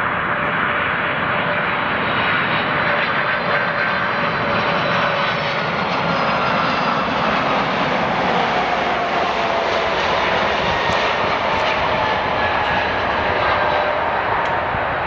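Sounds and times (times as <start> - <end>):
jet engines rushing: 0.0 - 15.0.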